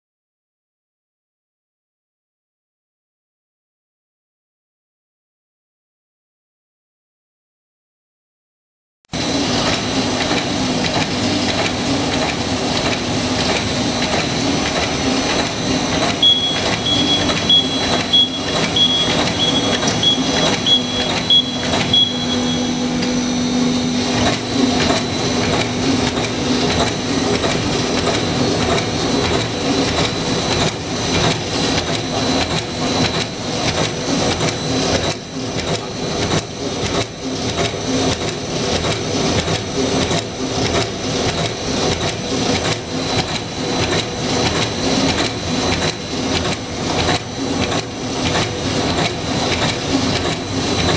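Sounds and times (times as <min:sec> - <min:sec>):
clicks from moving parts: 0:09.6 - 0:22.2, 0:24.2 - 0:50.9
machine clattering: 0:09.6 - 0:22.6
short faint high beeps: 0:16.2 - 0:22.8.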